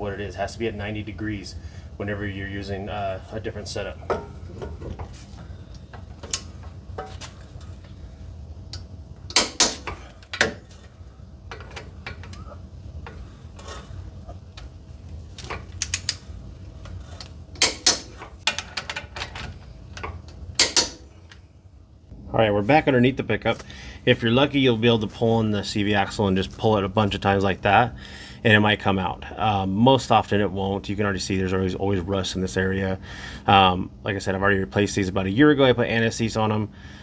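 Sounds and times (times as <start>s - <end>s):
loud sharp wrench clicks: 20.6s - 21.0s.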